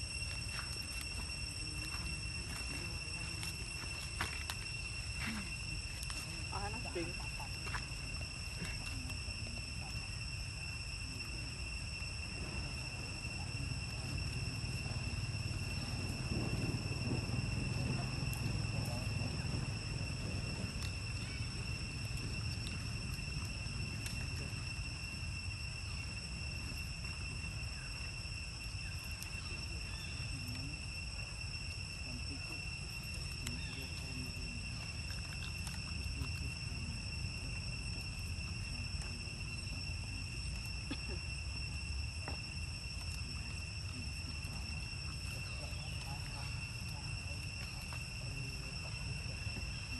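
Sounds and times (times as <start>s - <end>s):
high-pitched insect drone: 0.0s - 49.9s
low outdoor rumble: 0.0s - 49.9s
faint ticks and rustles: 15.7s - 49.9s.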